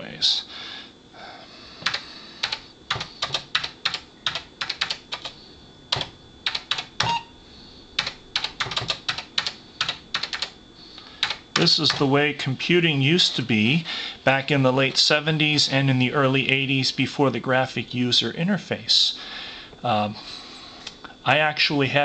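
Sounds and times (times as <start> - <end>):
computer error beep: 7.0 - 7.4.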